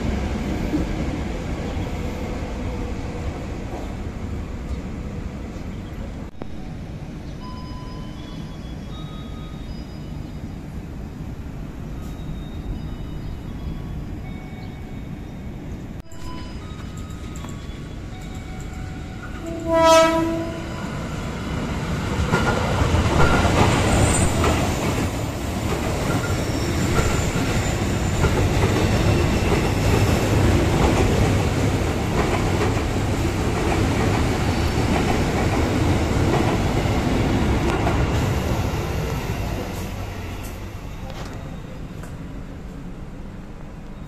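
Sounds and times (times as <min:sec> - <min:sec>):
train rumble and wheel clatter: 0:00.0 - 0:44.0
train horn blast: 0:19.4 - 0:20.9
high wheel squeals: 0:25.2 - 0:30.3.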